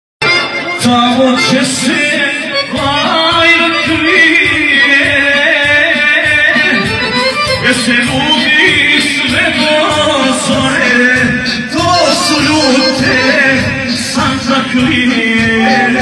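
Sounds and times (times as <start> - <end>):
live instrumental accompaniment: 0.2 - 16.0
man singing into microphone: 0.3 - 16.0.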